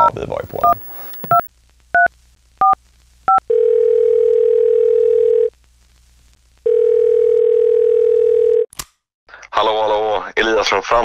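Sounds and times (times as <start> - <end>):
keypad beep: 0.5 - 1.5
telephone ringback tone: 0.5 - 1.5, 6.7 - 8.6.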